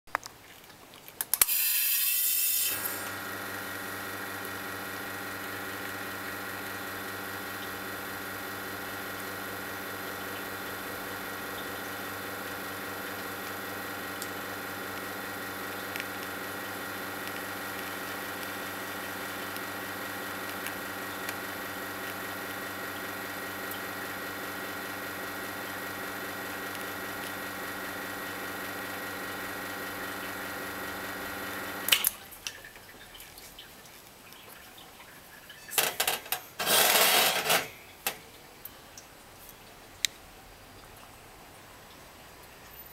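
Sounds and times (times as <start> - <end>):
espresso machine pump humming: 1.5 - 31.9.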